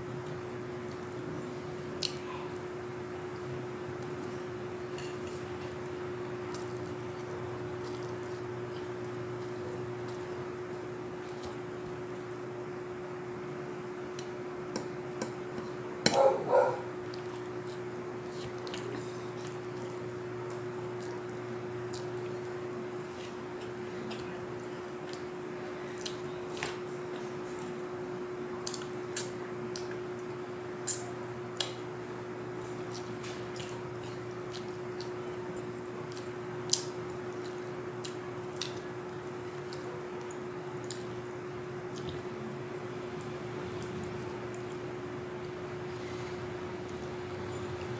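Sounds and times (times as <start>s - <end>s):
steady low hum: 0.0s - 47.9s
chewing and lip smacks: 6.4s - 11.7s, 17.0s - 24.4s, 25.9s - 27.8s, 28.5s - 31.9s, 32.6s - 41.2s, 41.8s - 47.9s.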